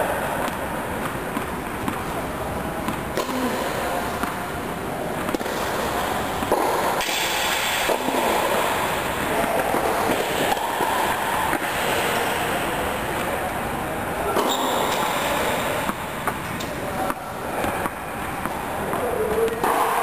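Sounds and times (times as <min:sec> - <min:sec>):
indoor hall background noise: 0:00.0 - 0:20.0
tennis ball bouncing on court: 0:00.4 - 0:02.2, 0:02.8 - 0:04.5, 0:05.2 - 0:11.8, 0:14.3 - 0:19.9.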